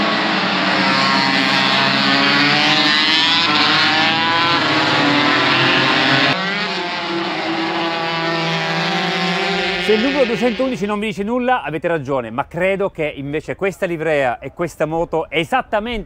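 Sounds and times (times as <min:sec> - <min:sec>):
racing engine revving: 0:00.0 - 0:10.9.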